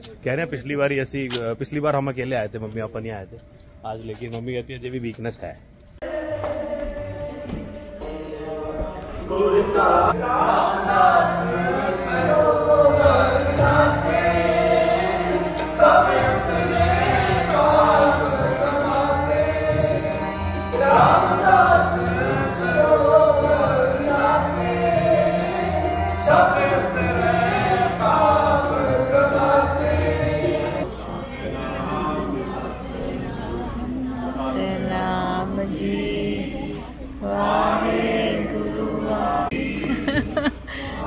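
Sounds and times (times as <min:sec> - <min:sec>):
men singing a hymn: 0:06.0 - 0:41.0
harmonium: 0:10.8 - 0:30.8.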